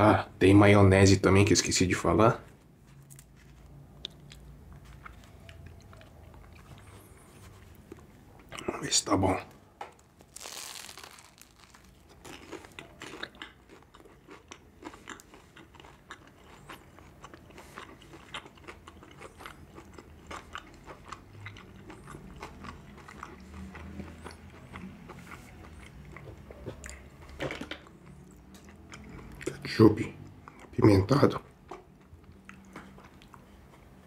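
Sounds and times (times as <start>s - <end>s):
chewing with crunching: 3.0s - 8.7s, 10.2s - 34.0s
biting into bread roll: 10.2s - 15.3s.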